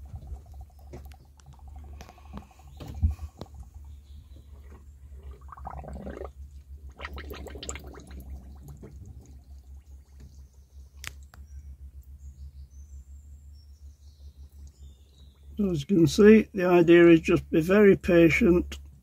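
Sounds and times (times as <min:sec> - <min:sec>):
coolant gurgling in radiator: 0:00.0 - 0:12.2
steady low hum: 0:00.0 - 0:19.0.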